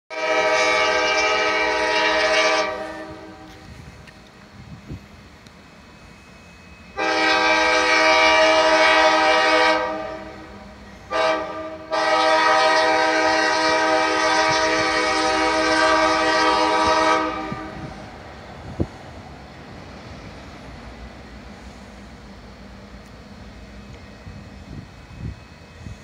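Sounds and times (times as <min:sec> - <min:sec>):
locomotive air horn blasts: 0:00.1 - 0:03.8, 0:06.9 - 0:18.0.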